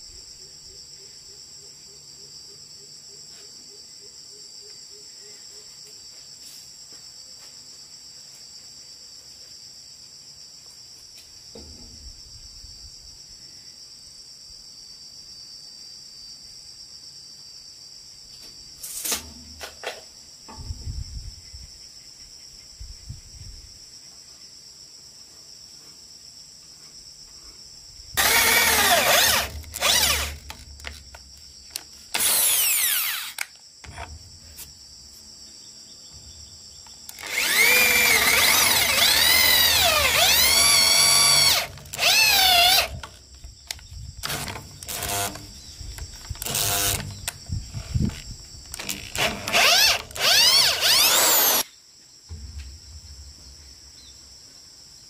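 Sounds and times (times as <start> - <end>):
insects buzzing: 0.0 - 55.0
electric drill boring into wood: 28.2 - 31.1, 32.1 - 34.1, 37.1 - 45.5, 46.2 - 51.6.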